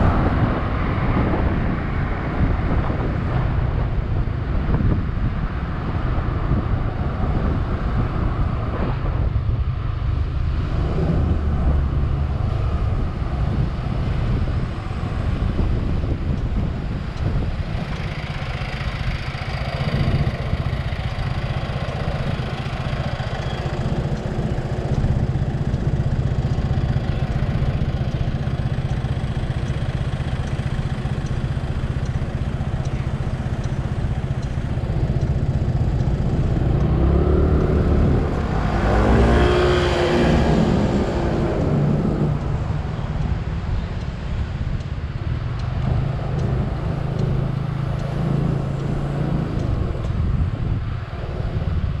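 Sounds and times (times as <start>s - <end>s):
wind noise on microphone: 0.0s - 52.0s
scooter engine running: 11.1s - 43.9s.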